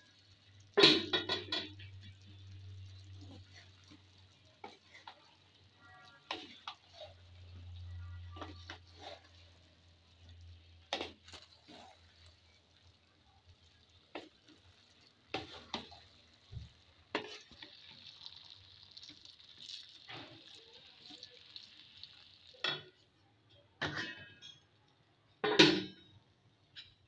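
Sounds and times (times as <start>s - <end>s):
faint sizzle: 0.0s - 27.0s
spatula scraping and knocking pan: 0.8s - 13.0s, 14.1s - 17.9s.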